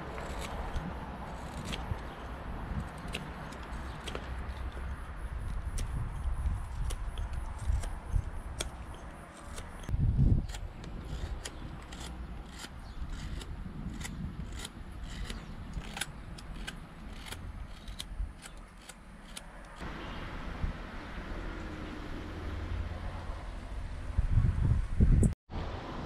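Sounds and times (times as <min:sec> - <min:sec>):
knife slicing wood: 0:00.0 - 0:19.8.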